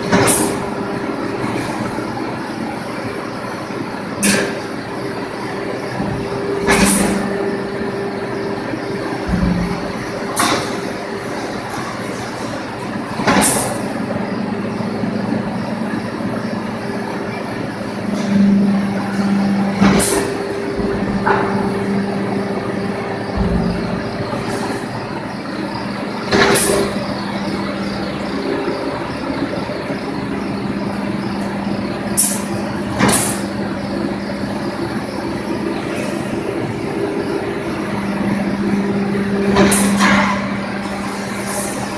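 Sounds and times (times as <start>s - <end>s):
bending machine humming: 0.0s - 41.9s
sharp metallic clanks: 9.2s - 11.0s, 23.2s - 25.4s.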